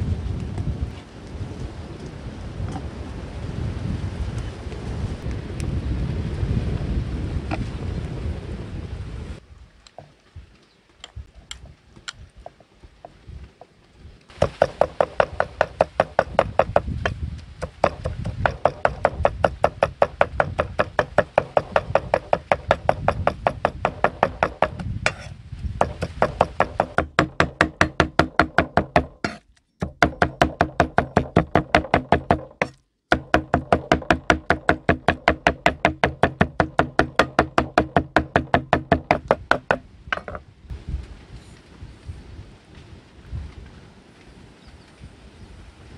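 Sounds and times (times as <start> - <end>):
cleaver chopping on wooden board: 14.4 - 40.4.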